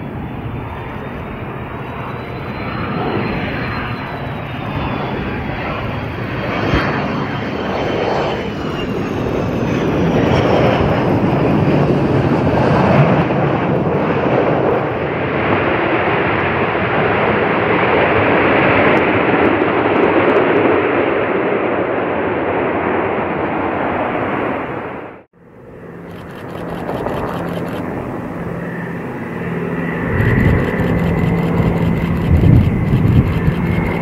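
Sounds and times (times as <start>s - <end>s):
jet engine noise: 0.0s - 34.0s.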